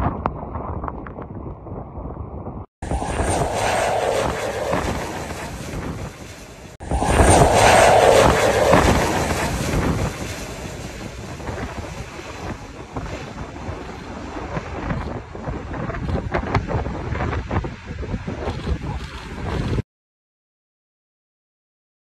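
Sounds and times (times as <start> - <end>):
wind noise on microphone: 0.0 - 19.8
small plane passing overhead: 2.8 - 15.3.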